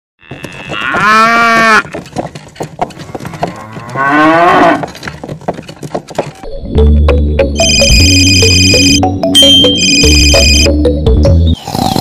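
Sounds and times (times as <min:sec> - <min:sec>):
cow mooing: 0:00.2 - 0:01.9, 0:03.1 - 0:05.0.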